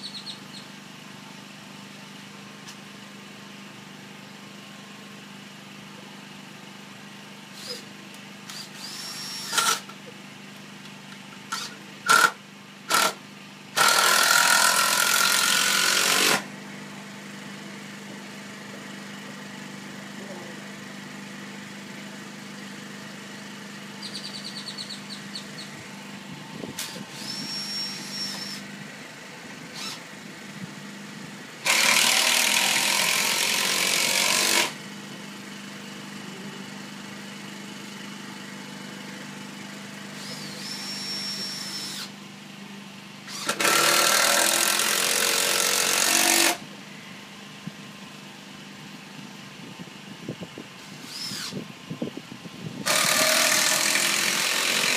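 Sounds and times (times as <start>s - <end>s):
power tool running: 6.3s - 10.1s, 10.9s - 42.2s, 43.2s - 46.7s, 50.8s - 52.1s, 52.7s - 54.9s
steady low hum: 16.4s - 31.7s.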